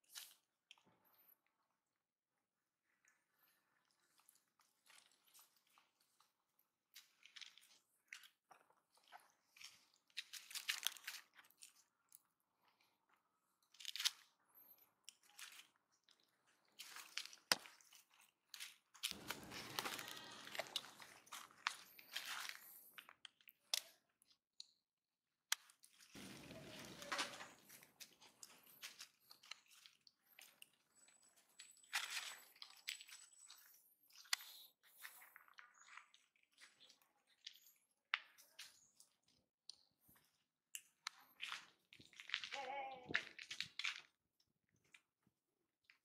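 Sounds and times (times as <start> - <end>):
crunches and rustles in dry leaves: 19.0 - 22.7.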